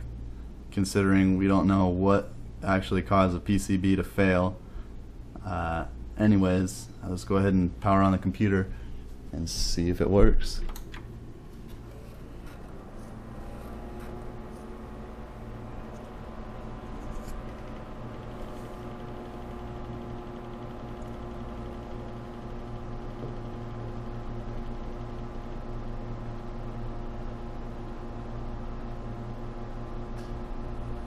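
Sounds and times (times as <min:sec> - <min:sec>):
computer fans whirring: 0:00.0 - 0:31.0.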